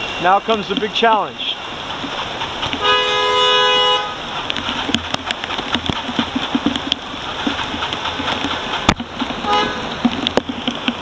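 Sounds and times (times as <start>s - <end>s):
bicycle tyres splashing through water: 0.0s - 11.0s
heavy rain: 0.0s - 11.0s
car horn toot: 2.8s - 4.2s, 9.5s - 9.9s
sharp ticks: 4.3s - 11.0s.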